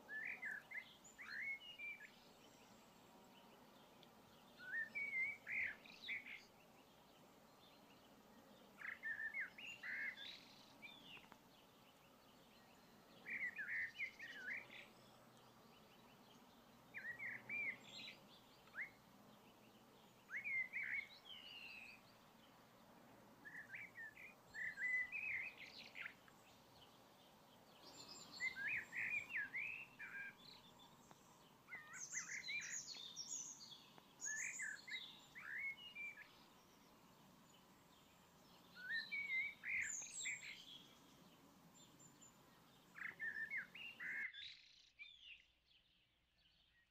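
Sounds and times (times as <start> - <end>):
faint steady hiss: 0.0 - 45.1
songbird warbling: 31.7 - 36.3.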